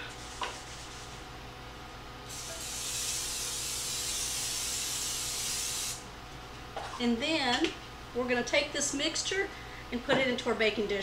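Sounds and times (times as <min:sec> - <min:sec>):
aerosol spray hissing: 0:02.4 - 0:06.0.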